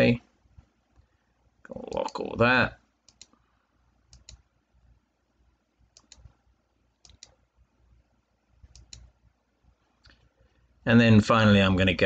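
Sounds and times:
faint computer mouse clicks: 3.1 - 3.4, 4.1 - 4.4, 5.9 - 6.4, 7.0 - 7.4, 8.6 - 9.1.

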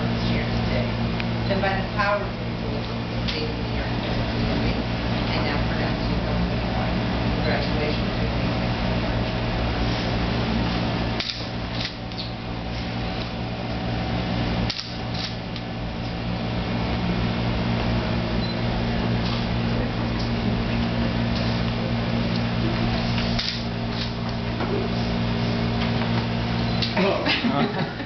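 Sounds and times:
ventilation fan hum and hiss: 0.0 - 28.0.

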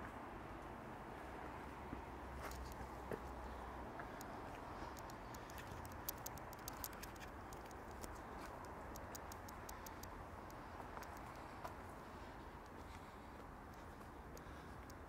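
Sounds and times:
faint high-pitched ticks and clicks: 2.4 - 3.2, 4.0 - 15.0.

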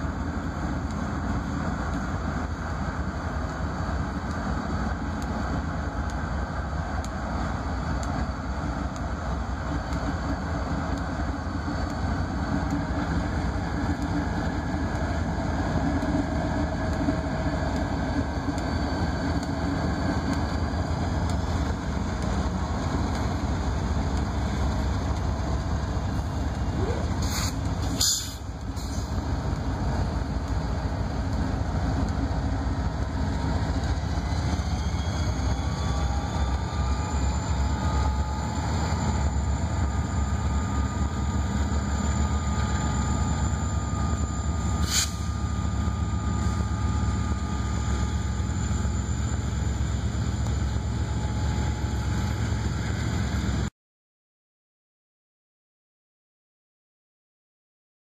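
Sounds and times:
freight train rumbling past: 0.0 - 53.7.

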